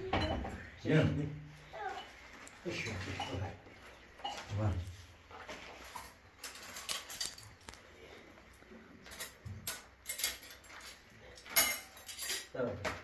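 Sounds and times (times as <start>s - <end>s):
metal dishes and utensils clinking: 2.0s - 3.6s, 4.2s - 4.7s, 5.7s - 7.5s, 9.0s - 13.0s.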